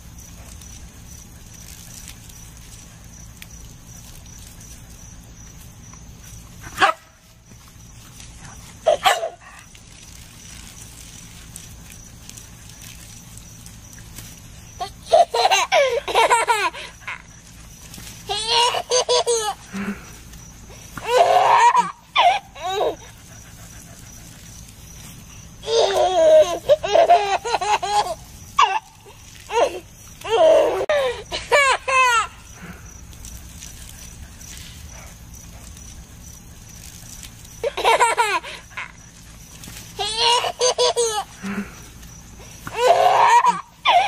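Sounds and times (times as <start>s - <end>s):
dog barking: 6.8s - 7.1s, 8.9s - 9.4s
baby laughing: 14.8s - 17.3s, 18.3s - 19.7s, 21.0s - 23.1s, 25.6s - 32.4s, 37.6s - 39.0s, 40.0s - 41.4s, 42.7s - 44.0s.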